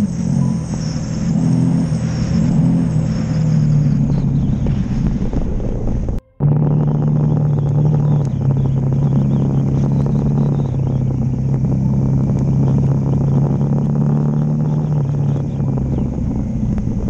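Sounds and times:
motorcycle engine cruising: 0:00.0 - 0:17.0
tyre and wind noise: 0:00.0 - 0:17.0
gravel ticks: 0:03.8 - 0:17.0.

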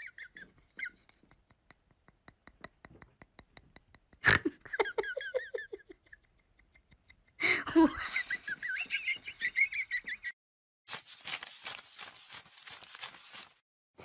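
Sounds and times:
person laughing: 0:00.0 - 0:10.3.

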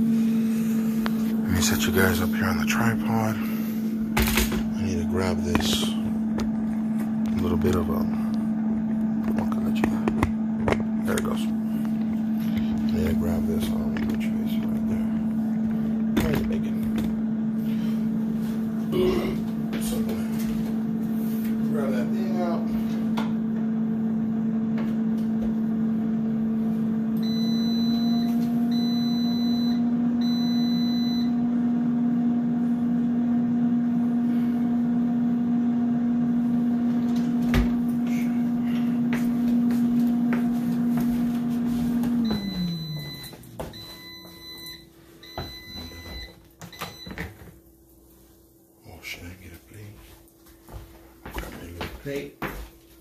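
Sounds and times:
air fryer fan humming: 0:00.0 - 0:53.0
air fryer beeps: 0:27.0 - 0:33.7, 0:41.7 - 0:47.4.

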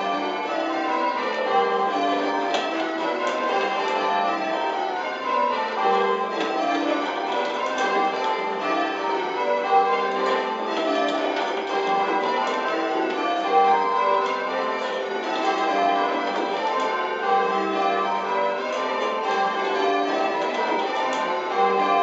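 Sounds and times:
church bells change ringing: 0:00.0 - 0:22.0.

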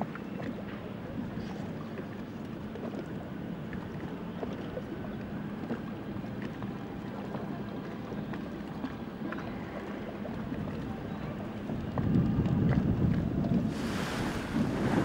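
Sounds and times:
wind blowing on microphone: 0:11.7 - 0:15.0.

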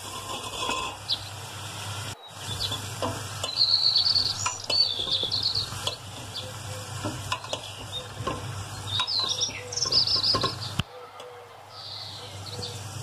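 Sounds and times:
metal spoon scraping a pot: 0:00.0 - 0:01.2
oil sizzling: 0:00.0 - 0:10.8, 0:12.4 - 0:13.0
birds chirping: 0:00.9 - 0:13.0.

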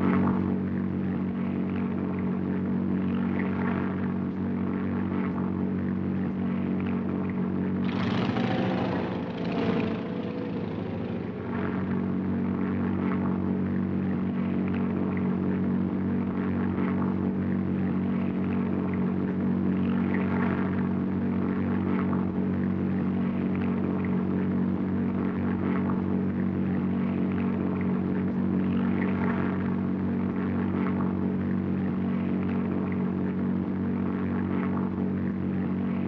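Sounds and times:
propeller airplane engine droning: 0:00.0 - 0:36.0.

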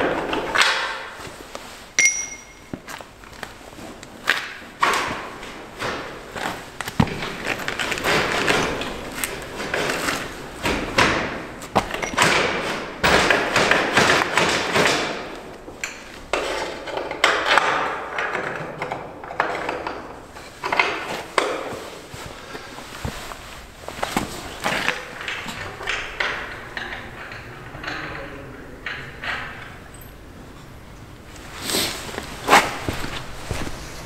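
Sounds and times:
knocks and thuds: 0:10.6 - 0:15.3.

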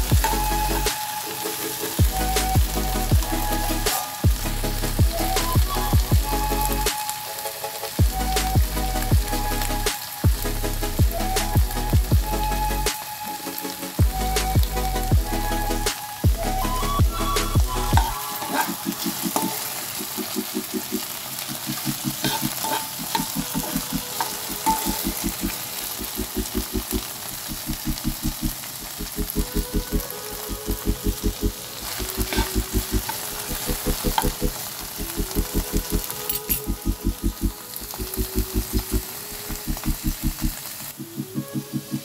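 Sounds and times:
okra sizzling in hot oil: 0:00.0 - 0:42.0
spoon scraping pan: 0:18.3 - 0:19.8, 0:22.2 - 0:25.2.

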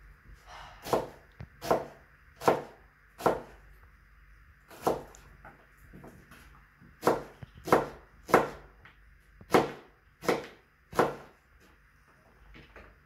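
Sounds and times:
knife chopping on plastic board: 0:00.8 - 0:03.6, 0:04.7 - 0:05.2, 0:07.0 - 0:08.7, 0:09.5 - 0:11.3.

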